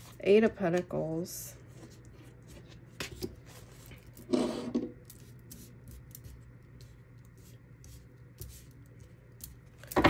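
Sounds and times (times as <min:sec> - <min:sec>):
cards sliding across a tabletop: 0:04.3 - 0:04.9.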